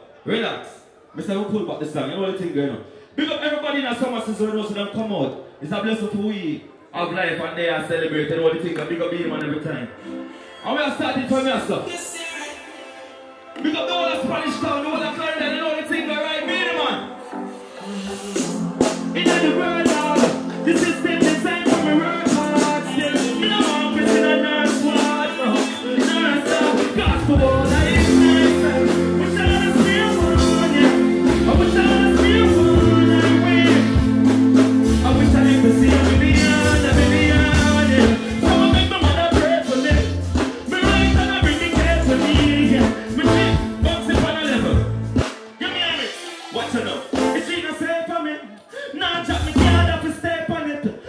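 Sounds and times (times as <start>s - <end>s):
live band music: 9.9s - 50.3s
person singing into a microphone: 19.2s - 44.8s
deep bass line: 27.0s - 45.2s, 49.3s - 50.1s.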